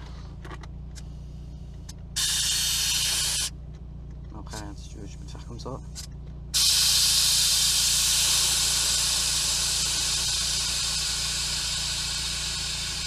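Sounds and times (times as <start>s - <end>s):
compressed air hissing: 2.2s - 3.5s, 6.0s - 13.0s.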